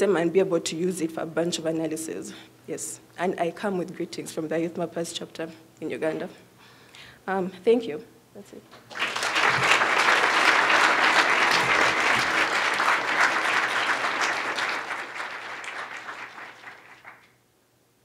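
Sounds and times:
audience applauding: 8.8 - 17.4.

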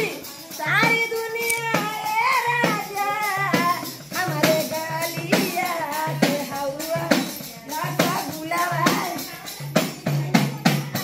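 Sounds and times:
hand tambourine beating: 0.0 - 11.0
woman singing: 0.0 - 11.0.

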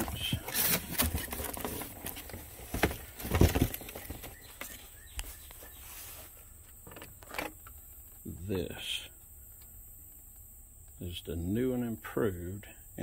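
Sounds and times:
low background hum: 0.0 - 13.0
knocks and thuds: 2.7 - 4.3.

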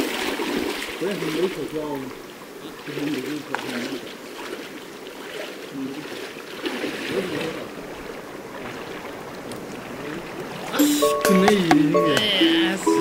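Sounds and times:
water sloshing and splashing: 0.0 - 10.8
background music: 10.8 - 13.0.

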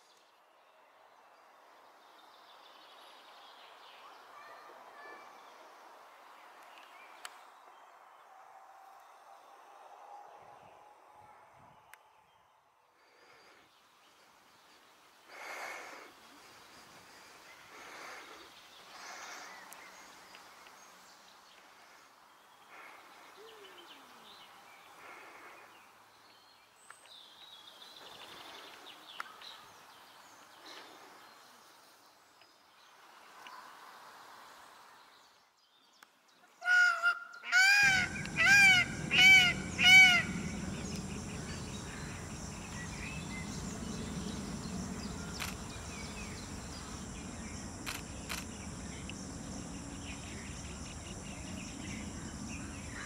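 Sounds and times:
peafowl honking calls: 36.6 - 43.8
high even whine: 37.9 - 53.0.

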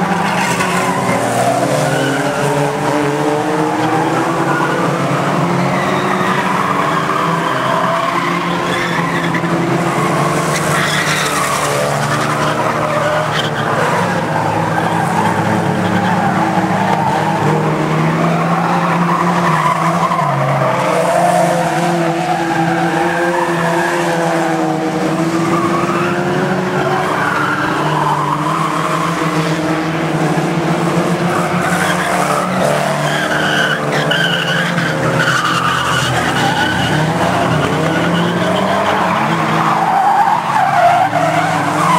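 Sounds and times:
racing car engines revving: 0.0 - 41.9
tyre squeal: 5.6 - 17.4, 31.3 - 41.9.

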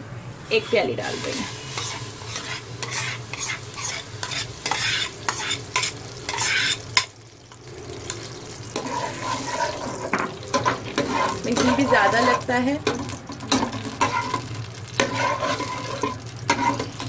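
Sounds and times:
ghee sizzling: 0.3 - 17.0
metal spoon scraping steel bowl: 0.6 - 6.8, 8.8 - 12.5, 15.0 - 17.0
stirring in a pot: 0.6 - 17.0.

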